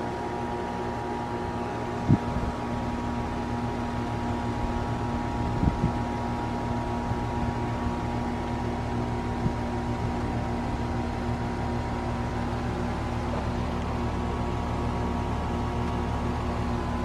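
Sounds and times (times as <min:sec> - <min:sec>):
heat pump compressor hum: 0:00.0 - 0:17.0.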